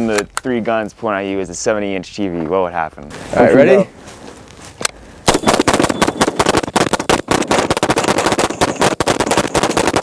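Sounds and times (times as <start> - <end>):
guns firing rapidly: 5.3 - 10.0.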